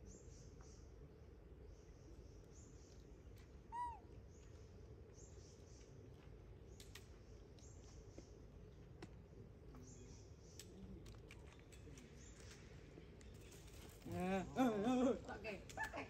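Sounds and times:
monkey coo call: 3.7s - 4.1s
faint leaf rustles: 11.2s - 16.0s.

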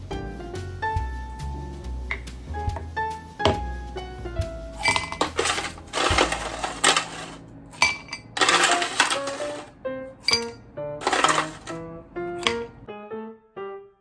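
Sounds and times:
background music: 0.0s - 14.0s
ice cubes clinking in a glass: 4.8s - 9.7s, 10.3s - 11.7s.

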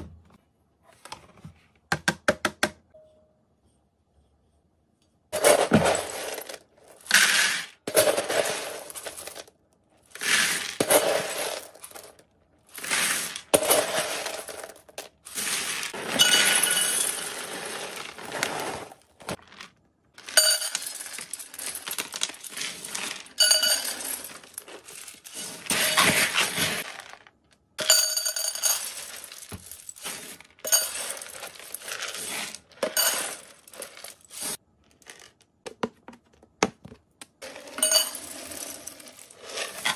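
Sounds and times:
scoop scraping through kibble: 5.4s - 9.4s, 10.1s - 12.1s, 12.7s - 27.3s, 28.4s - 35.3s, 37.4s - 39.9s
pellets clattering into plastic basin: 5.4s - 9.5s, 10.1s - 35.5s, 37.4s - 39.9s.

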